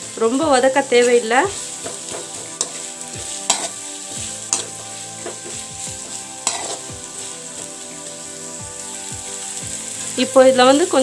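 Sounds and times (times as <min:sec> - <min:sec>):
vegetables sizzling in oil: 0:00.0 - 0:11.0
metal spoon clinking against pan: 0:03.5 - 0:03.8, 0:06.4 - 0:06.9.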